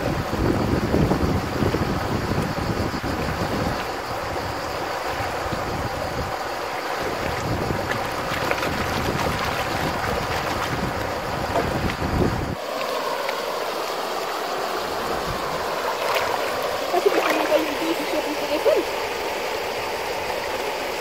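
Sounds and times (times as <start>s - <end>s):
wind buffeting microphone: 0.0s - 12.6s
river rushing: 0.0s - 21.0s
water sloshing in a pan: 15.1s - 18.8s.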